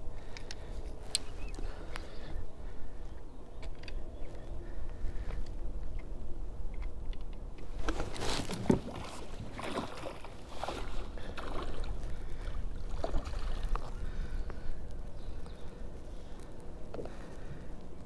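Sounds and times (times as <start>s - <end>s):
wind rumbling on microphone: 0.0s - 18.0s
water splashing around kayak: 7.7s - 15.4s.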